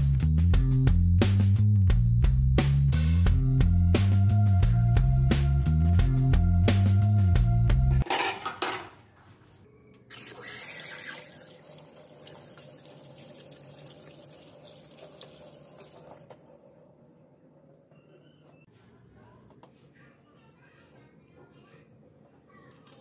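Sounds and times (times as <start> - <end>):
music: 0.0 - 8.1.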